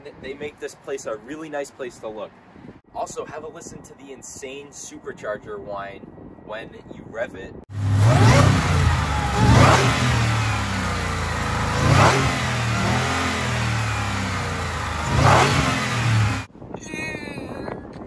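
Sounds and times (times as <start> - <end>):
car engine revving: 7.7 - 16.5
supercharger whine: 7.7 - 16.5.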